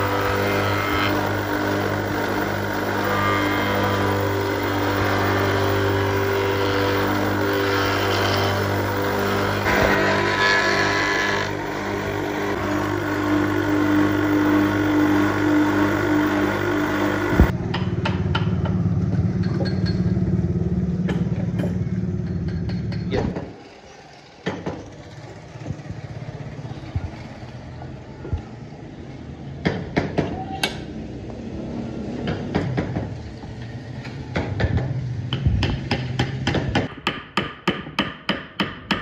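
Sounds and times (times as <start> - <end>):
spindle moulder running: 0.0 - 17.5
hand carving tools tapping wood: 34.3 - 39.0.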